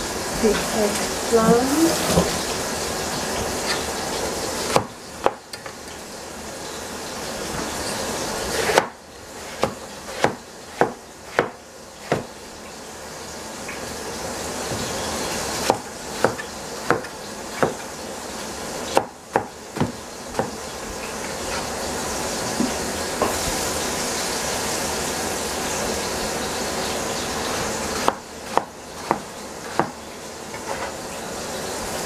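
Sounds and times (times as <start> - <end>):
cleaver chopping on plastic board: 4.7 - 5.6, 8.6 - 12.3, 15.6 - 17.8, 18.9 - 20.6, 28.0 - 30.0.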